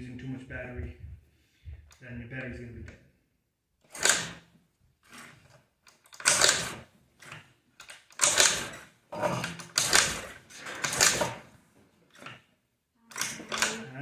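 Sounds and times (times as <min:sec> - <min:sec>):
scooter kickstart: 0:03.9 - 0:04.5, 0:05.1 - 0:11.5
engine turning over clattering: 0:06.2 - 0:07.4, 0:08.2 - 0:11.5.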